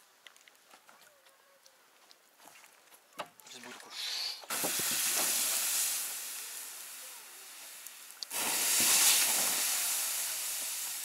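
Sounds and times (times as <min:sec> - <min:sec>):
water hissing on hot coals: 0:03.4 - 0:11.0.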